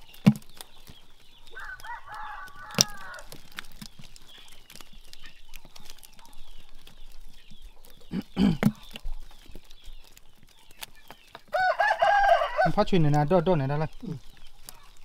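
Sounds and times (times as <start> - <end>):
rooster crowing: 1.6 - 3.3, 11.5 - 12.9.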